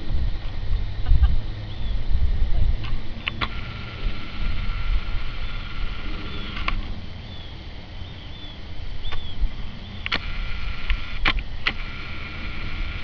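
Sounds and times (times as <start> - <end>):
wind rumbling on microphone: 0.0 - 13.0
short sharp clicks: 2.8 - 4.0, 10.0 - 12.1.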